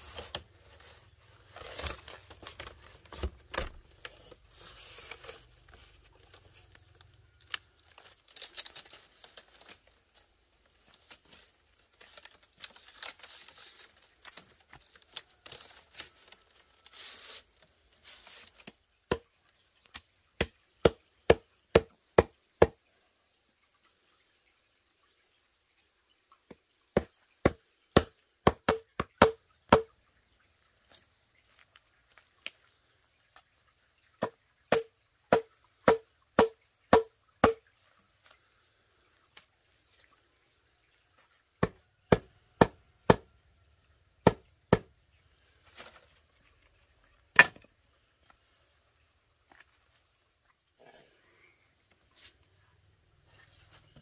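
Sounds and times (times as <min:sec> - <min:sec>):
blade chopping bamboo: 0:19.9 - 0:22.8, 0:27.0 - 0:29.9, 0:34.2 - 0:37.6, 0:41.6 - 0:43.3, 0:44.2 - 0:44.9, 0:47.3 - 0:47.7.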